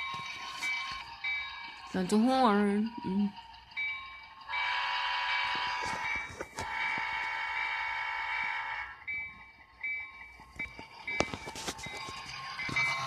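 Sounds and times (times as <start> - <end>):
model locomotive horn blowing: 4.6 - 6.0, 6.6 - 9.0.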